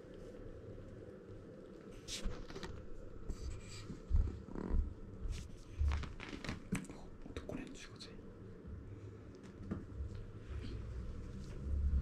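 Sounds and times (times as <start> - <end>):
clothing fabric rustling: 2.0 - 6.9.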